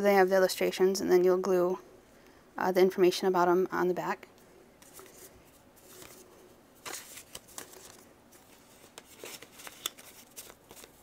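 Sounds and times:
paper cards rustling: 4.8s - 11.0s.

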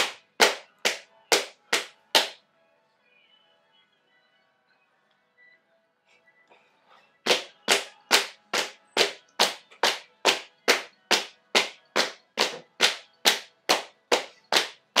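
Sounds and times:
hand claps: 0.0s - 2.4s, 7.3s - 15.0s.

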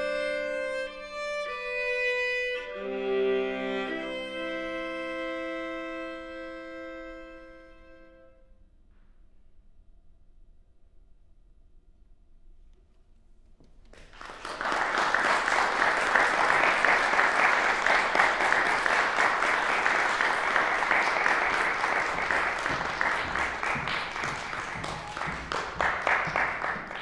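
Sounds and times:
audience applause: 13.9s - 27.0s.

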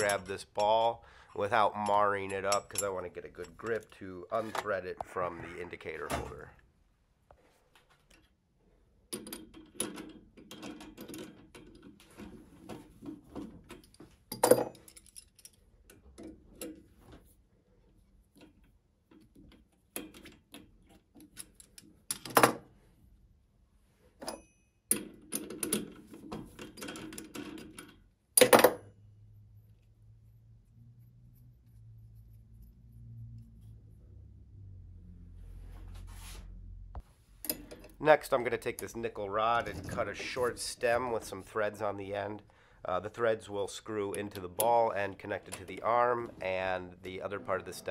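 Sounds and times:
metal clicks and clinks: 0.0s - 0.8s, 1.7s - 4.0s, 13.7s - 16.8s, 37.4s - 38.0s
faint low hum: 29.1s - 41.7s.

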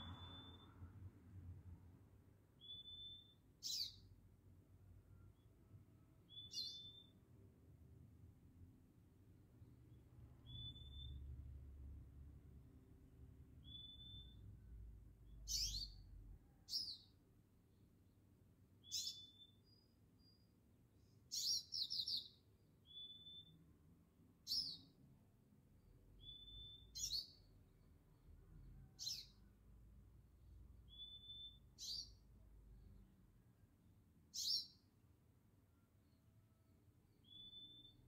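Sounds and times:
songbird whistling calls: 0.0s - 0.7s, 2.6s - 4.0s, 6.3s - 7.1s, 10.4s - 11.2s, 13.6s - 14.4s, 15.4s - 16.0s, 18.8s - 20.5s, 21.3s - 23.6s, 24.5s - 24.9s, 26.2s - 27.5s, 30.8s - 32.2s, 34.4s - 34.8s, 37.2s - 38.0s
faint low rumble: 0.0s - 2.3s.

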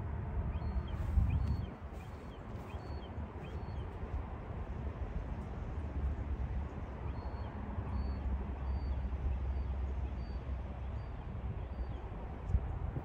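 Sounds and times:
wind buffeting microphone: 0.0s - 7.4s, 10.8s - 13.0s.

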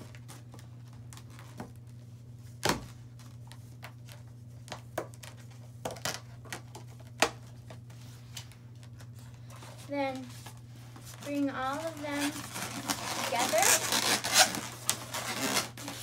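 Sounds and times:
steady low hum: 0.0s - 16.0s
balloon rubber squeaks and snaps: 12.4s - 16.0s.

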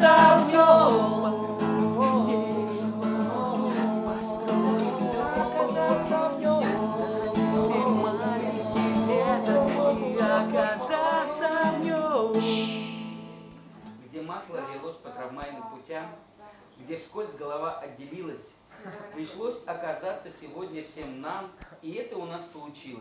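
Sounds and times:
person singing: 0.0s - 13.6s
acoustic guitar: 0.0s - 16.7s.

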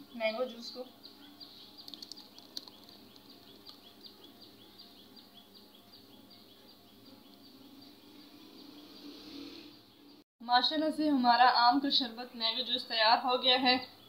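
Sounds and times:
faint high chirping: 0.0s - 10.2s.

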